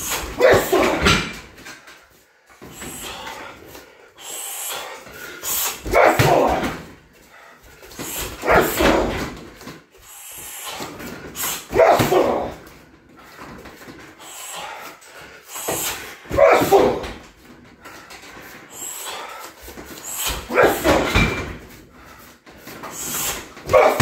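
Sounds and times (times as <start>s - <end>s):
kicks striking heavy bag: 5.9s - 6.8s.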